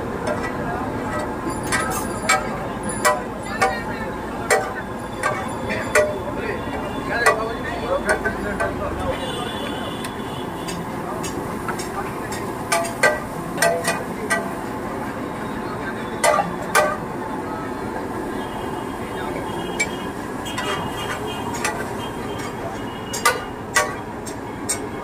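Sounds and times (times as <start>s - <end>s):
street din: 0.0s - 25.0s
metal utensil clanking on cookware: 0.2s - 6.3s, 10.7s - 14.6s, 16.2s - 17.0s, 20.6s - 24.9s.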